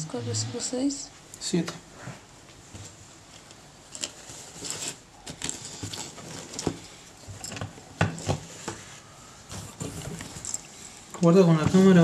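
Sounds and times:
rustling: 0:02.0 - 0:11.0.

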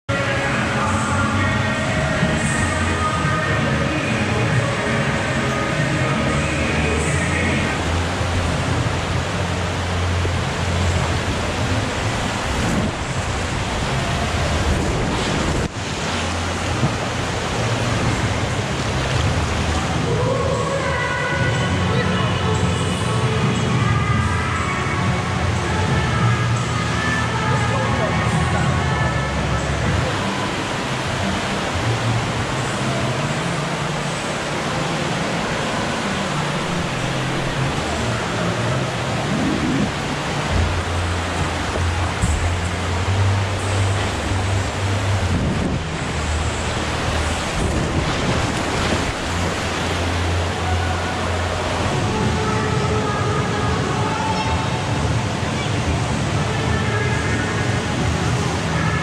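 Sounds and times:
water rushing down a slide: 0:01.8 - 0:24.4, 0:25.2 - 0:59.0
wind hiss on microphone: 0:44.9 - 0:50.0.

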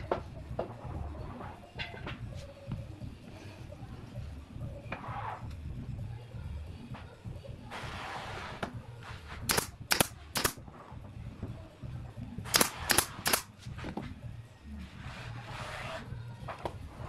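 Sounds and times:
nail gun firing: 0:09.5 - 0:10.6, 0:12.5 - 0:13.5.

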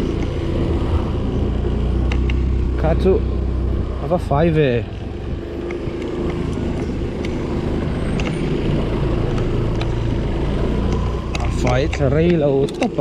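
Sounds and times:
motorcycle engine drone: 0:00.0 - 0:13.0
road and wind noise: 0:00.0 - 0:13.0
clicks and rattles: 0:10.9 - 0:13.0.

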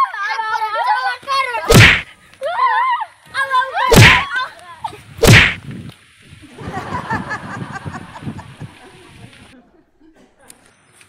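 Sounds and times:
loud sharp whacks: 0:01.7 - 0:02.1, 0:03.9 - 0:04.3, 0:05.2 - 0:05.6
children crying out: 0:02.4 - 0:04.3.

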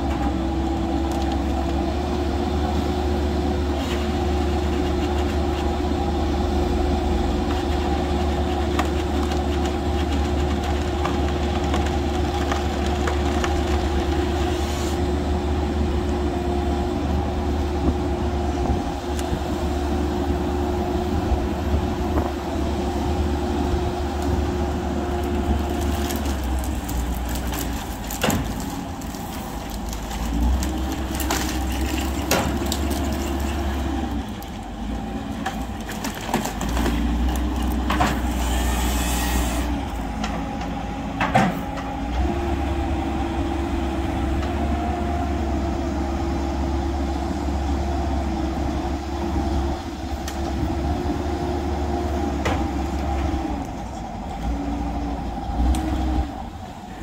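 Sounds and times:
diesel engine under load: 0:00.0 - 0:57.0
tree shear cutting: 0:03.7 - 0:15.1, 0:21.9 - 0:40.3
wood cracking: 0:07.5 - 0:14.4, 0:24.2 - 0:38.6.

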